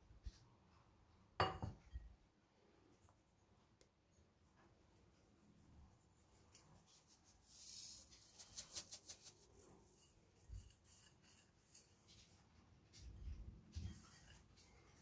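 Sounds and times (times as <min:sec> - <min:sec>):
fingers rubbing dry flour: 0:06.0 - 0:12.5
seasonings shaken into bowl: 0:07.7 - 0:09.6.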